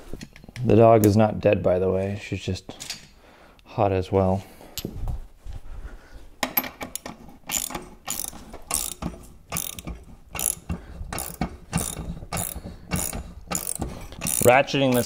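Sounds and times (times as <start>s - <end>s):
ratchet wrench clicking: 7.0s - 15.0s.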